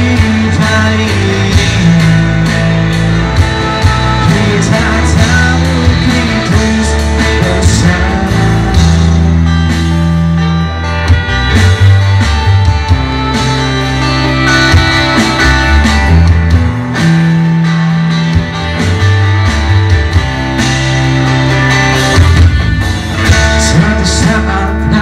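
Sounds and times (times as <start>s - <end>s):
man singing: 0.0s - 9.3s, 23.2s - 25.0s
bass: 0.0s - 25.0s
drums: 0.0s - 25.0s
electric guitar: 0.0s - 25.0s.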